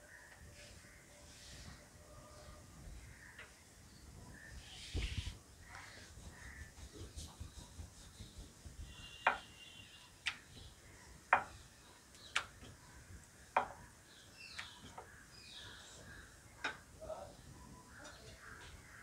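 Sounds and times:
rolling pin knocking on wooden board: 9.2s - 9.5s, 11.3s - 11.5s.

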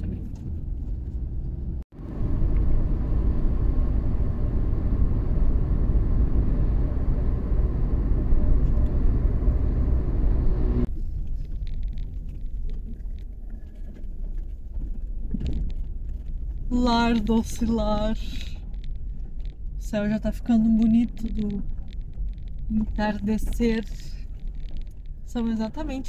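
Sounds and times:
road noise: 0.0s - 13.5s
car engine rumble: 0.0s - 26.0s.

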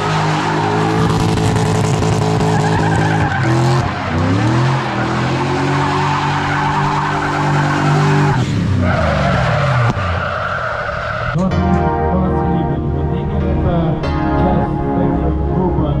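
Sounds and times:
car engine at high revs: 0.0s - 11.3s
tyres squealing: 2.3s - 11.4s.

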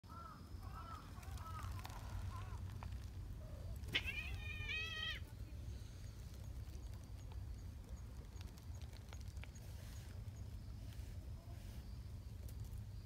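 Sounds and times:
cat meowing: 3.9s - 5.2s.

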